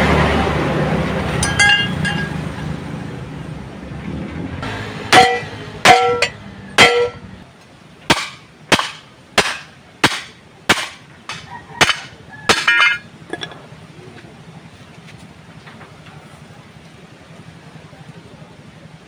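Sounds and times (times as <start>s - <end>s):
hammer striking steel: 1.4s - 2.6s, 4.6s - 7.3s, 8.1s - 13.6s.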